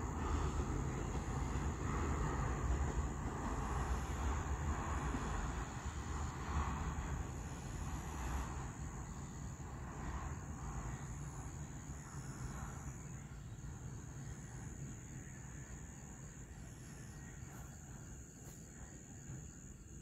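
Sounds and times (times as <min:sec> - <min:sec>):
insects chirring: 0:00.0 - 0:20.0
train wagons rolling on rails: 0:00.0 - 0:20.0.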